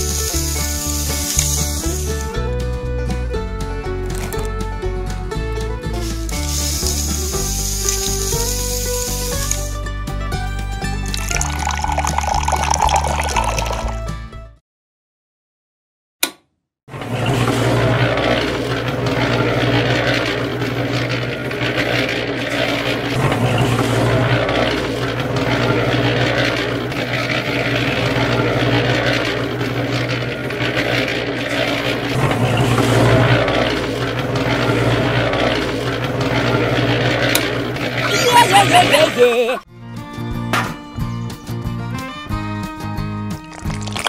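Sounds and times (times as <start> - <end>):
small cement mixer motor running: 0.0 - 2.4, 5.9 - 9.8, 16.9 - 39.5.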